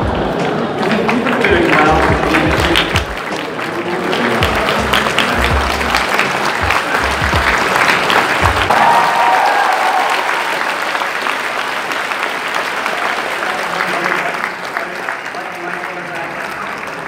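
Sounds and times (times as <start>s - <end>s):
music playing: 0.0s - 9.0s
audience applauding: 0.0s - 17.0s.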